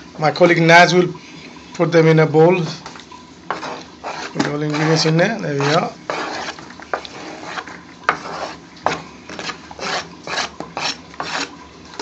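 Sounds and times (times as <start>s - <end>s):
metal spoon scraping plastic board: 3.5s - 11.5s.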